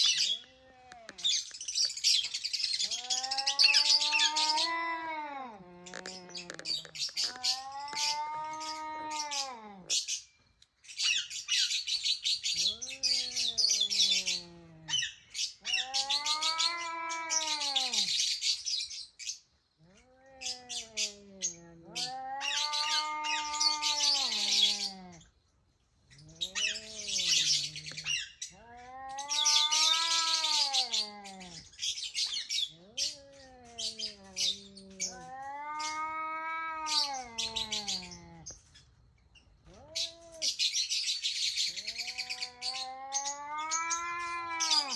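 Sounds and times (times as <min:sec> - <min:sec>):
cat meowing: 0:02.8 - 0:10.0, 0:15.6 - 0:18.2, 0:19.8 - 0:25.2, 0:26.3 - 0:31.7, 0:32.7 - 0:38.5, 0:39.6 - 0:40.6, 0:41.7 - 0:44.9.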